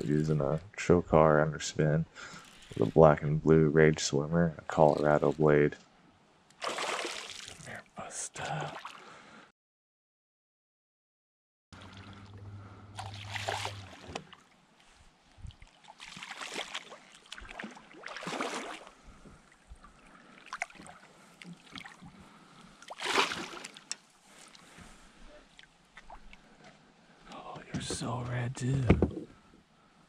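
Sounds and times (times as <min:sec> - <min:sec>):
fish splashing and thrashing: 0:06.6 - 0:07.7, 0:13.0 - 0:14.5, 0:15.5 - 0:24.8.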